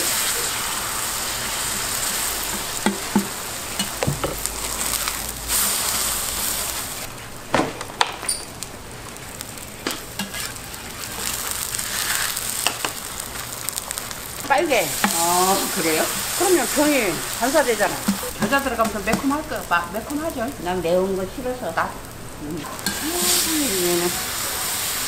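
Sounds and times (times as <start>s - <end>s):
pancakes sizzling in oil: 0.0s - 25.0s
metal spatula scraping griddle: 9.4s - 19.2s.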